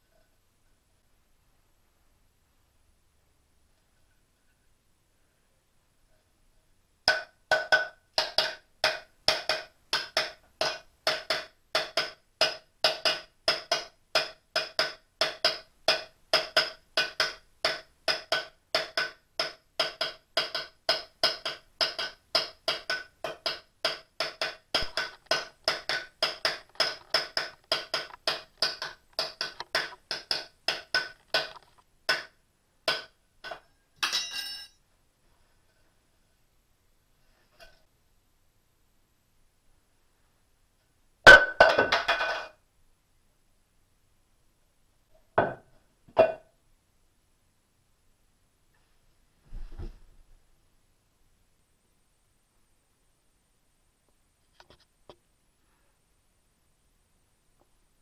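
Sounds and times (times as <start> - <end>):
hollow wooden knocks: 7.1 - 33.6, 45.4 - 46.4.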